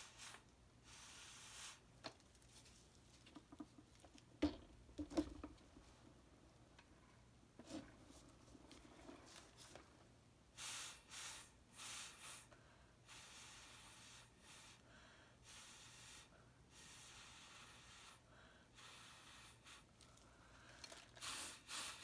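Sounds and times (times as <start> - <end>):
blowing through a straw: 0.0 - 1.9, 10.6 - 14.8, 15.4 - 18.2, 18.8 - 19.9, 21.1 - 22.0.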